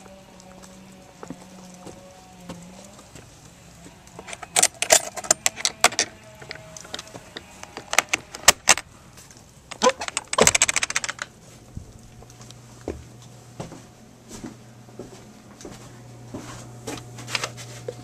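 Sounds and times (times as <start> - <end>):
barrel bolt being worked: 4.2 - 8.8, 9.7 - 11.3
keys jangling: 4.3 - 7.1, 9.7 - 11.3
padlock clicking: 4.3 - 8.8.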